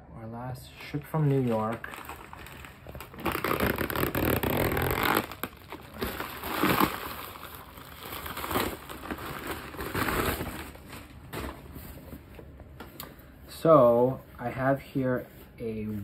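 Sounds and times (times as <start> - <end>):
wrapping crinkling and rustling: 0.8 - 13.0
plastic pack tearing open: 1.1 - 11.2.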